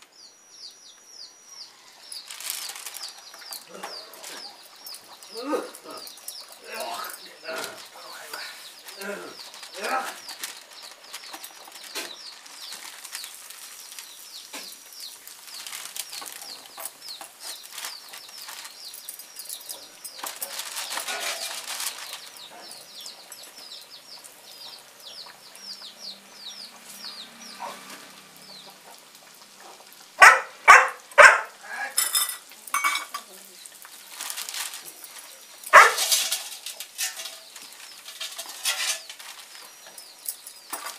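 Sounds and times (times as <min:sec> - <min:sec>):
bird chirping: 0:00.0 - 0:29.0
plastic sheet crinkling: 0:02.1 - 0:23.2, 0:32.8 - 0:40.9.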